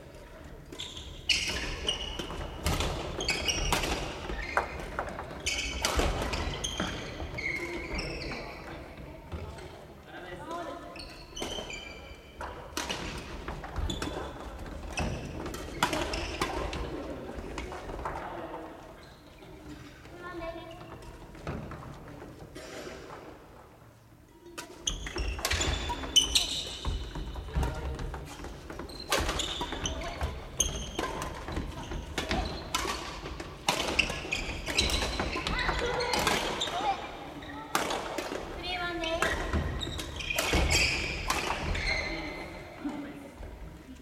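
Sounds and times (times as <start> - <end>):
voices echoing in a hall: 0.0 - 44.0
shoe squeaks on wooden floor: 3.1 - 4.8, 5.4 - 8.7, 11.0 - 12.3, 24.8 - 32.9, 33.9 - 37.7, 38.8 - 42.6
rackets striking shuttlecocks: 24.5 - 37.0.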